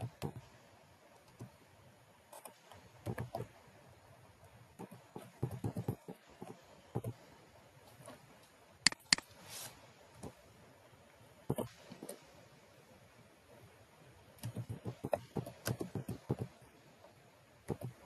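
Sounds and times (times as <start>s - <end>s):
soft hiss: 0.0s - 18.0s
computer keyboard typing: 4.8s - 6.1s, 14.4s - 16.5s
sharp clicks: 8.9s - 9.3s.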